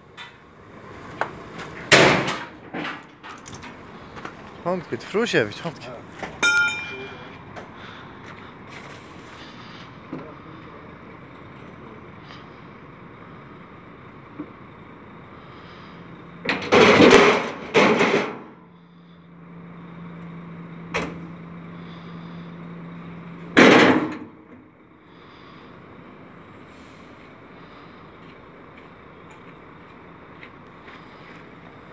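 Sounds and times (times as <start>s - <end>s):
steady low hum: 0.0s - 31.9s
metal ramp clattering: 16.5s - 18.6s.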